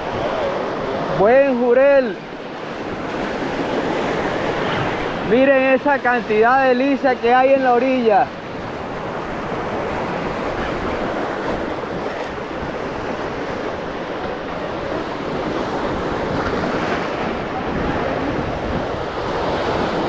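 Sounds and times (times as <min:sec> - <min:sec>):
wind buffeting microphone: 0:08.6 - 0:20.0.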